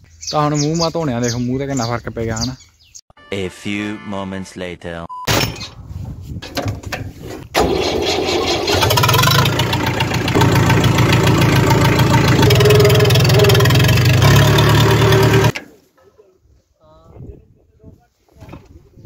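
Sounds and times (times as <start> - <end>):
tractor diesel engine running: 7.6 - 15.6.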